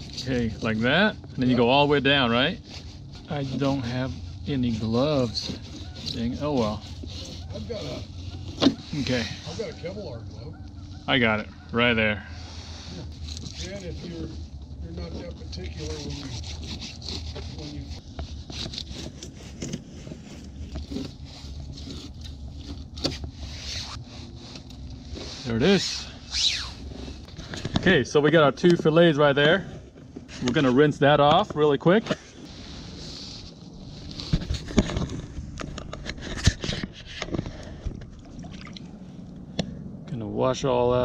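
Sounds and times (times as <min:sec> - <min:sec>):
knife scraping through fish: 0:02.6 - 0:09.6, 0:15.2 - 0:27.3
small water splashes: 0:38.1 - 0:39.0.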